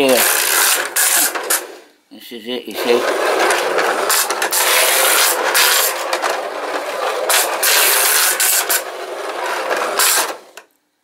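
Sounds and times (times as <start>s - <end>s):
toy roller-coaster cars rattling: 0.0s - 1.8s, 2.8s - 10.6s.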